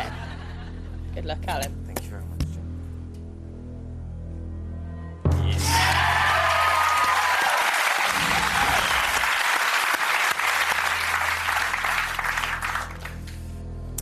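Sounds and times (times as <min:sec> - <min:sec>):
whoops and cheers: 0:05.5 - 0:09.3
audience applauding: 0:05.7 - 0:13.5.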